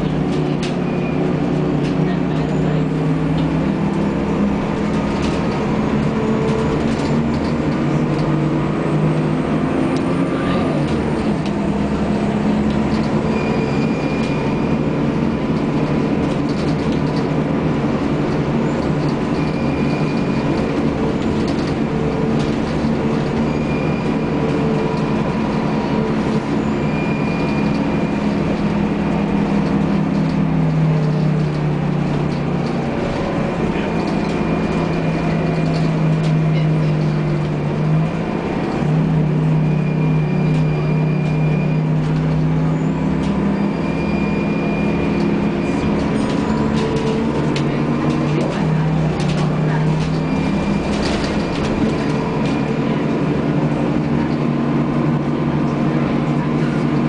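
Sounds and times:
bus engine drone: 0:00.0 - 0:57.0
road and cabin noise: 0:00.0 - 0:57.0.

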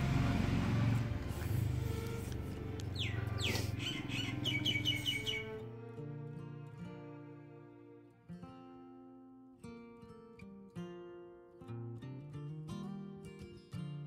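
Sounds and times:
music: 0:02.7 - 0:14.0
bird whistling and chirping: 0:02.9 - 0:05.6.

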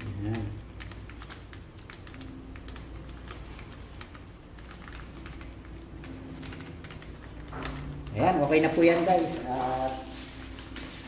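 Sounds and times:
gloved hand patting breading: 0:00.0 - 0:11.0.

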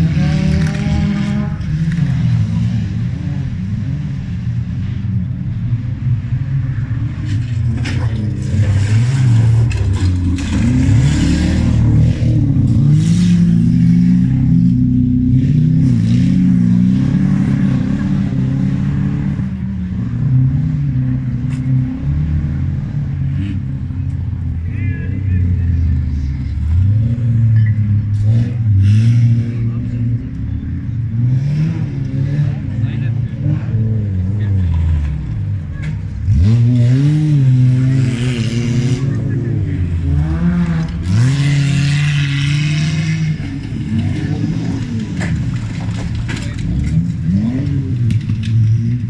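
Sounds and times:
racing car engines revving: 0:00.0 - 0:49.0.

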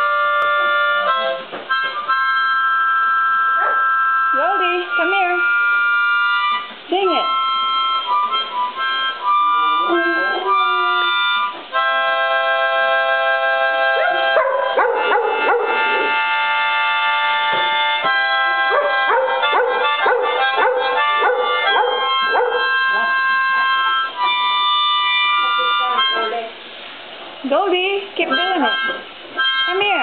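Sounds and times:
harmonica playing chords: 0:00.0 - 0:26.5, 0:28.1 - 0:30.0
dog howling: 0:13.9 - 0:16.4, 0:18.7 - 0:22.9.

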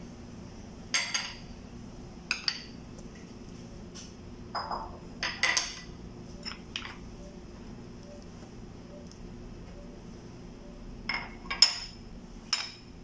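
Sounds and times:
ceramic dishes clinking and scraping: 0:00.9 - 0:01.5, 0:02.3 - 0:02.8, 0:04.5 - 0:07.0, 0:11.1 - 0:12.9.

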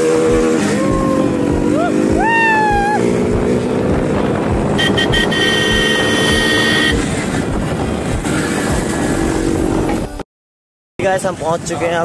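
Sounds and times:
vehicle engine running: 0:00.2 - 0:10.1
vehicle horn honking: 0:04.7 - 0:07.2.

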